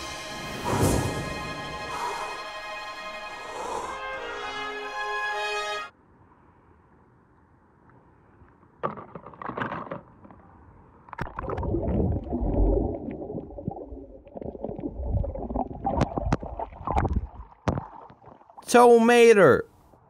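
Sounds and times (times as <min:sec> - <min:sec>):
underwater rumbling and gurgling: 0:11.1 - 0:18.6
water splashing: 0:11.1 - 0:18.7.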